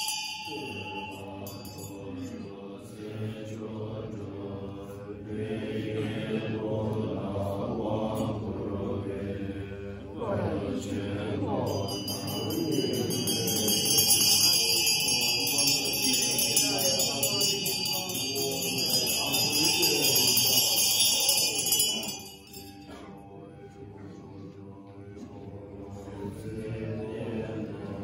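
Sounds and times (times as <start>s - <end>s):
ritual bells jingling: 0.0s - 3.4s, 11.0s - 23.9s
monks chanting low: 0.0s - 28.0s.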